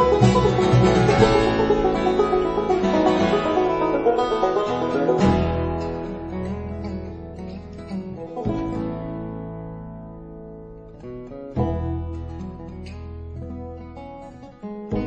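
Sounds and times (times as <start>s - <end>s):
banjo and guitar music: 0.0s - 15.0s.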